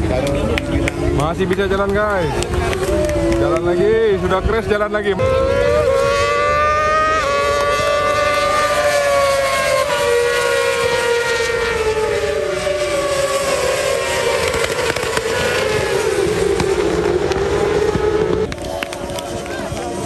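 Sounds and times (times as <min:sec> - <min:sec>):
racing motorcycles at high revs: 0:00.0 - 0:20.0.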